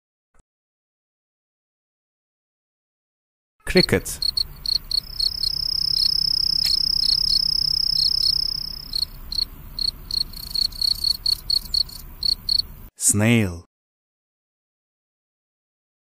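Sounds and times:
crickets chirping: 3.8s - 12.9s
high-pitched insect trill: 4.2s - 12.7s.

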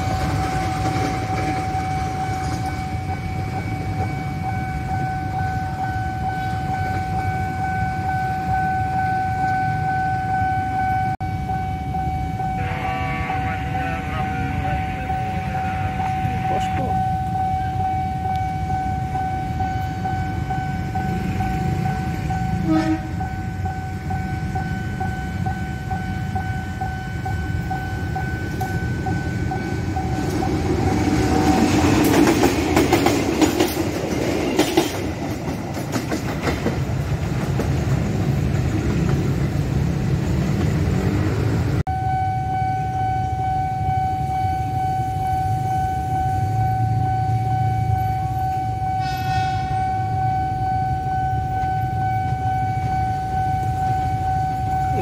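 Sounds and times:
wheels clattering over rail joints: 0.0s - 4.2s
level crossing warning alarm: 0.0s - 36.1s, 40.4s - 55.0s
diesel locomotive engine: 0.0s - 55.0s.

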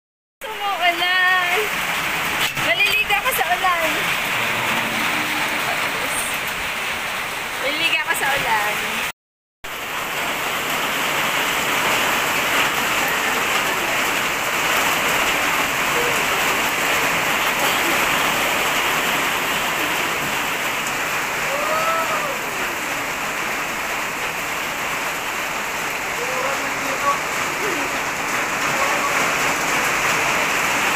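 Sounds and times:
rain on concrete: 0.4s - 30.9s.

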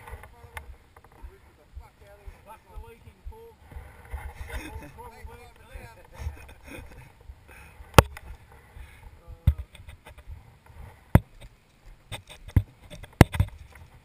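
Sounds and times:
wind rumble on microphone: 2.8s - 11.5s.

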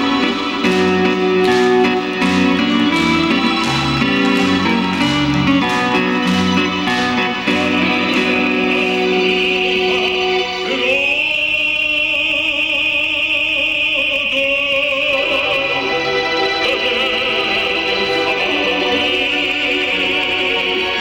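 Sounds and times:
instrumental accompaniment: 0.0s - 11.0s
man singing operatically: 7.2s - 21.0s.

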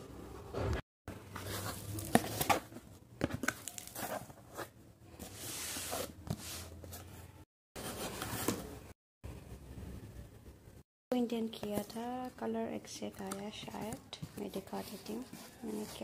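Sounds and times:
cardboard box being handled: 1.4s - 7.1s.

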